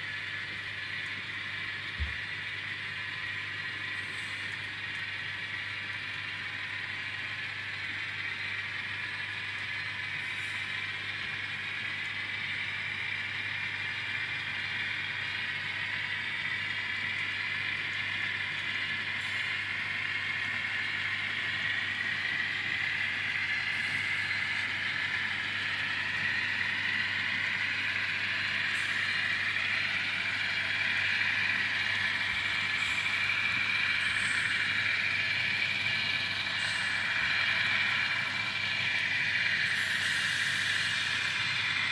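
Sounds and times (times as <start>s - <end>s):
model train motor whirring: 0.0s - 41.9s.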